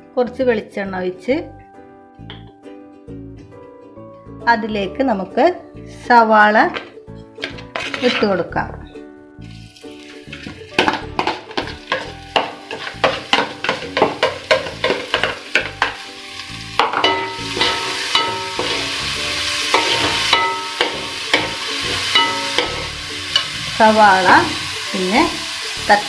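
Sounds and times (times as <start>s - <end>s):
spoon scraping onions from bowl: 6.7s - 8.4s
onions sizzling in oil: 9.4s - 26.0s
metal spoon clinking on pot: 16.8s - 18.9s, 19.7s - 23.5s.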